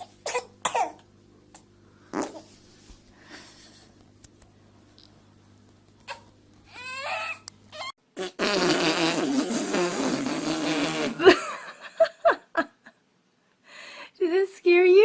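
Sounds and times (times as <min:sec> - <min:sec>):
long sputtering fart: 0:02.1 - 0:02.5, 0:08.1 - 0:11.4.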